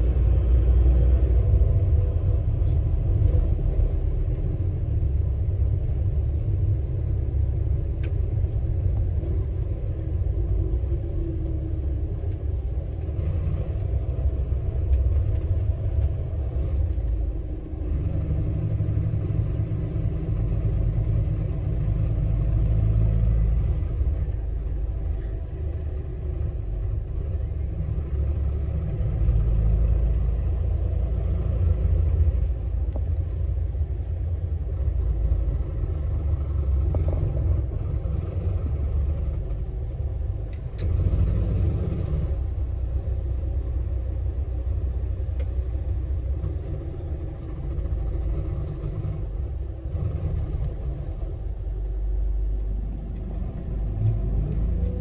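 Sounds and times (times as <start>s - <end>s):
bus engine and road rumble: 0.0s - 55.0s.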